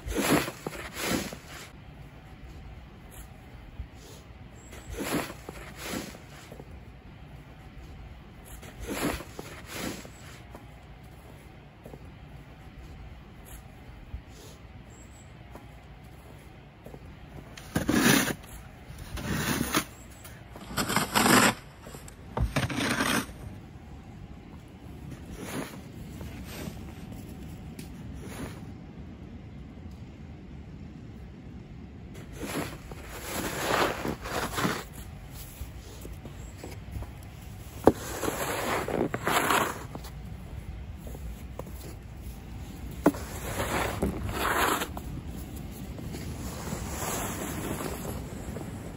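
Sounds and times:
snow shovel scraping driveway: 0.0s - 1.8s, 4.0s - 6.8s, 7.6s - 11.4s, 16.2s - 23.6s, 25.0s - 27.4s, 28.2s - 28.7s, 32.2s - 48.9s.

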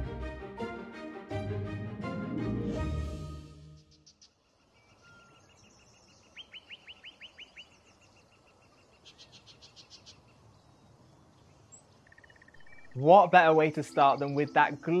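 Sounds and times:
bird whistled song: 3.8s - 8.0s, 11.7s - 15.0s.

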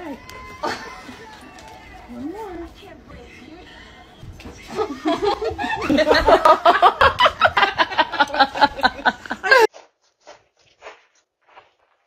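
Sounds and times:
hearty laughter: 4.7s - 9.7s.

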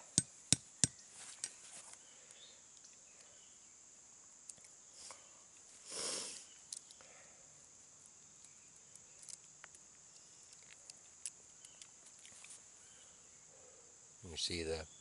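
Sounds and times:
high insect drone: 0.0s - 15.0s
nut shells cracking with a tool: 6.7s - 7.0s, 8.3s - 12.4s.

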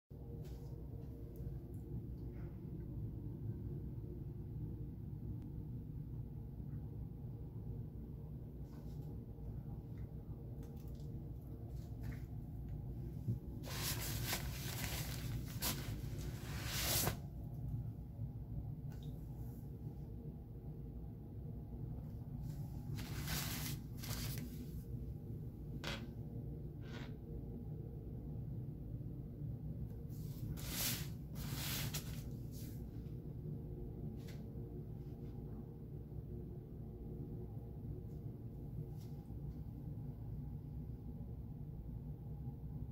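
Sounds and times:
steady low hum: 0.1s - 42.9s
diaper cover rustling: 13.6s - 17.2s, 23.0s - 24.6s.

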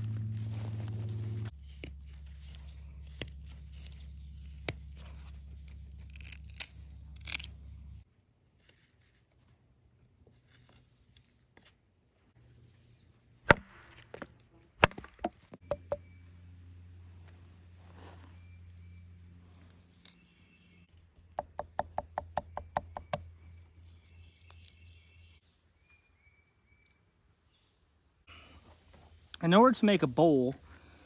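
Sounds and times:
footsteps through undergrowth: 0.0s - 8.0s, 17.1s - 19.8s
steady low hum: 0.0s - 8.1s.

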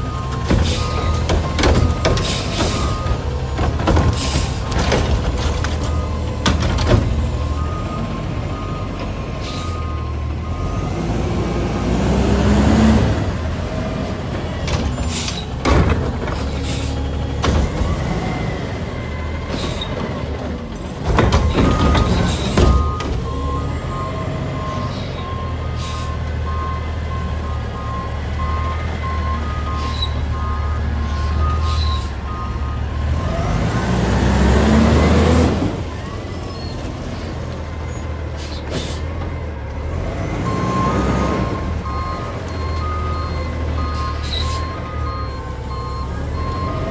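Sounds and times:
diesel engine revving: 0.0s - 46.9s
beeping alarm: 21.6s - 34.0s, 40.5s - 46.9s.

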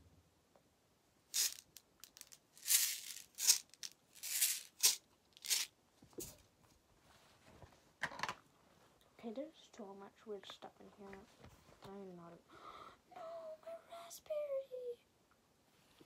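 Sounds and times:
small objects rustling and rattling: 1.3s - 6.4s.

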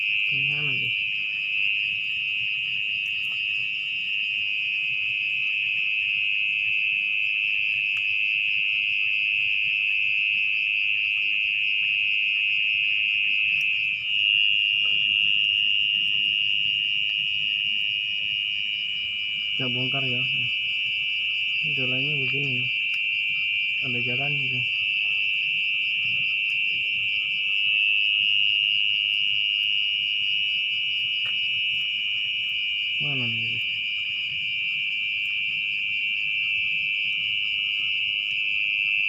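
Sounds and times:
mole cricket buzzing trill: 0.0s - 1.2s.

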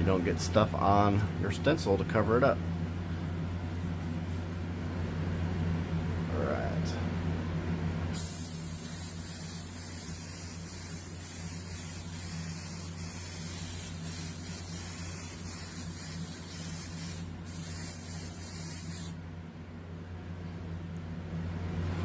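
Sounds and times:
airbrush spraying hiss: 8.1s - 19.2s.

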